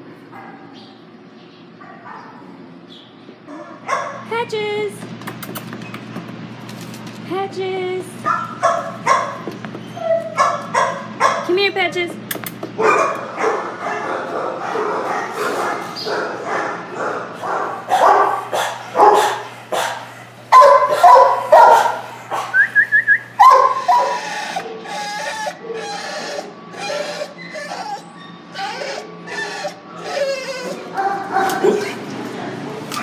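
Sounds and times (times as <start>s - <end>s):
dogs barking: 0.2s - 1.0s, 1.7s - 2.8s, 3.4s - 4.3s, 8.2s - 11.6s, 12.6s - 33.0s
dog yelping: 8.3s - 11.5s, 12.8s - 22.7s, 23.3s - 32.1s.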